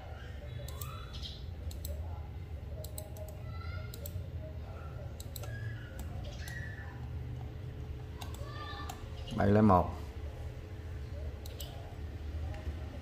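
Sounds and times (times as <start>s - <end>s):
steady low hum: 0.0s - 13.0s
computer mouse clicking: 0.6s - 1.0s, 1.6s - 2.0s, 2.8s - 4.2s, 5.2s - 9.0s, 11.4s - 11.8s.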